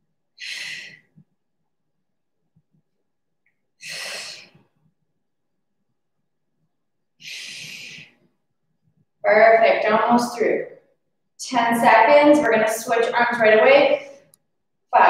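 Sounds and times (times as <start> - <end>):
woman exhaling: 0.4 - 1.1, 3.8 - 4.6, 7.2 - 8.1.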